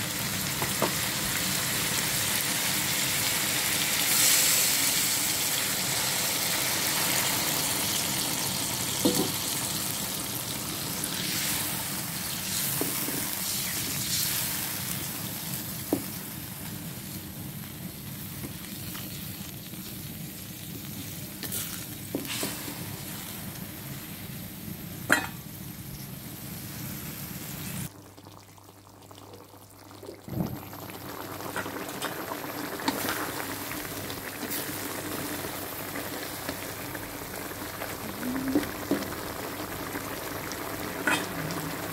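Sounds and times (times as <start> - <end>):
water sizzling and bubbling in wok: 0.0 - 41.9.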